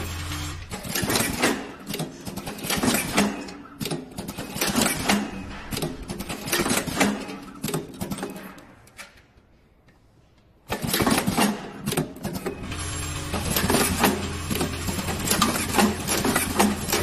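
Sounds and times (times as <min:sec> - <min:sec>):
machine clicking and clacking: 0:00.0 - 0:09.3, 0:10.7 - 0:17.0.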